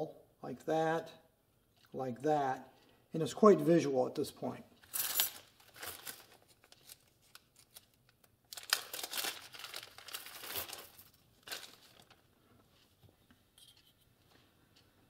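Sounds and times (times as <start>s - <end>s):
plastic bag crinkling: 5.3s - 7.9s, 8.5s - 12.2s.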